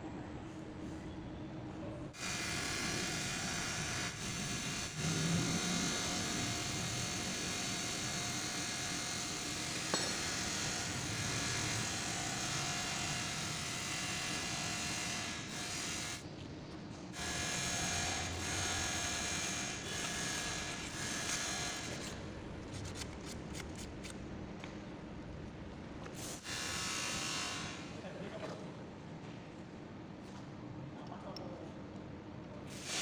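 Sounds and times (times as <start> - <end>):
small electric motor humming: 2.2 - 16.2, 17.2 - 22.2.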